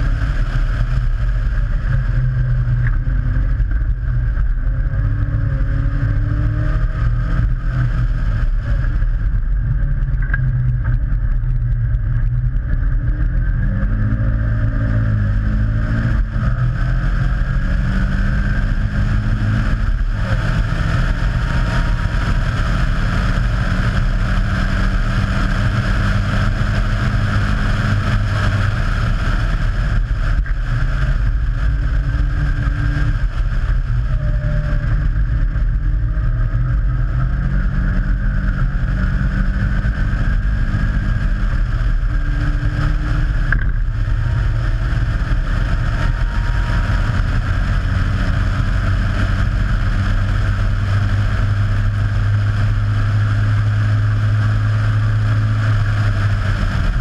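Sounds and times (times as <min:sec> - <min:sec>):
racing car engine: 0:00.0 - 0:57.0
wind noise: 0:00.0 - 0:57.0.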